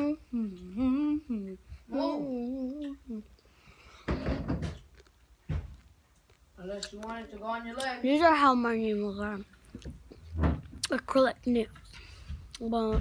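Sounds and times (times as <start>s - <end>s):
girl making sing-song sounds: 0.0s - 3.4s.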